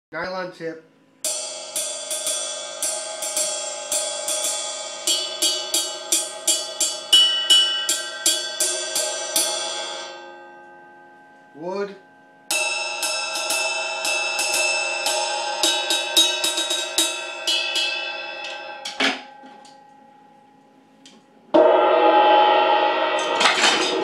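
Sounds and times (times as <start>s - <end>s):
ride cymbal strokes with drumstick: 1.2s - 10.2s, 12.5s - 18.9s
mallet striking cymbal: 1.2s - 20.8s, 21.6s - 24.0s
cymbal ringing wash: 1.2s - 21.0s, 21.6s - 24.0s.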